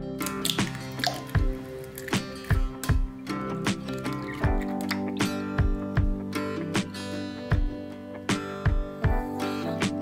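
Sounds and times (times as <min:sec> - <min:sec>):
background music with low thumps: 0:00.0 - 0:10.0.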